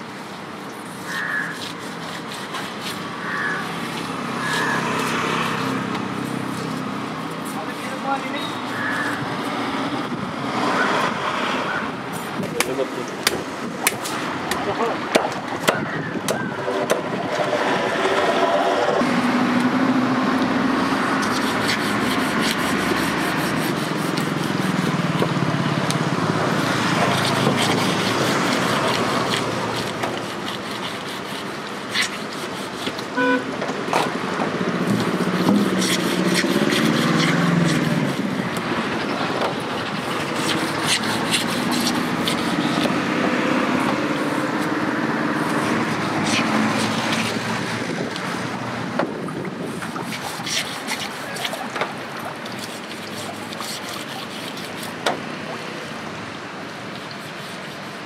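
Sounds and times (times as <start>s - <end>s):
knife scaling fish: 0.8s - 9.6s, 21.2s - 26.0s, 26.6s - 33.1s, 34.8s - 38.7s, 39.5s - 43.2s, 43.8s - 48.4s, 49.6s - 55.2s, 56.9s - 58.0s
vehicle engines running: 16.7s - 30.1s
short horn toot: 33.1s - 33.5s.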